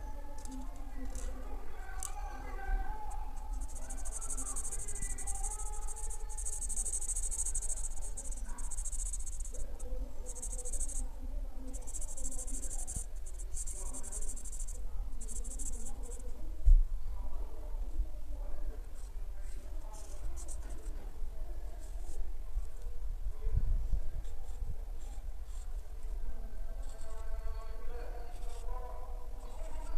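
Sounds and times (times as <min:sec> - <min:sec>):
marker squeaking on paper: 0:03.1 - 0:11.0, 0:11.7 - 0:16.2, 0:20.0 - 0:20.9, 0:28.3 - 0:28.7.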